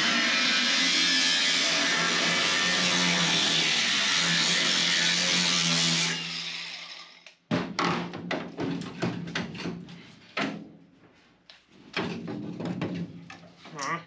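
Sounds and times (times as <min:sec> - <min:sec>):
angle grinder winding down: 0:00.0 - 0:07.2
metal knocks and clunks: 0:07.5 - 0:10.8, 0:11.9 - 0:13.6.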